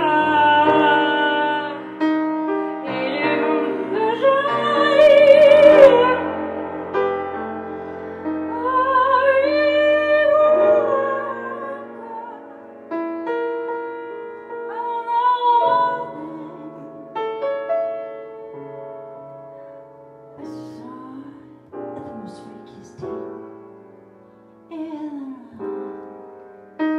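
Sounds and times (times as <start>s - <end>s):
woman singing with vibrato: 0.0s - 2.0s, 2.8s - 6.4s, 8.4s - 12.6s, 14.7s - 17.2s, 20.4s - 23.2s, 24.7s - 25.6s
piano chords: 0.0s - 26.9s.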